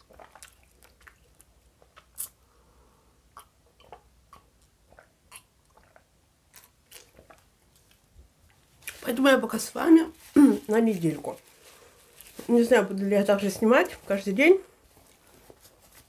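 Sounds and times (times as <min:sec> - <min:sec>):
lip smacks: 0:00.0 - 0:02.4
swallowing: 0:03.3 - 0:06.1.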